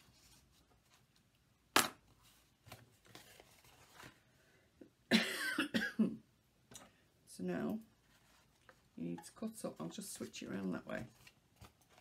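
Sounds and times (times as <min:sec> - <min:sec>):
cardstock folding and rustling: 0:00.0 - 0:01.4, 0:02.1 - 0:04.4, 0:07.9 - 0:12.0.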